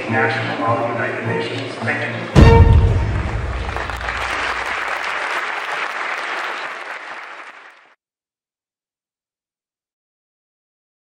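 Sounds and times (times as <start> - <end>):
audience applauding: 2.8 - 8.0.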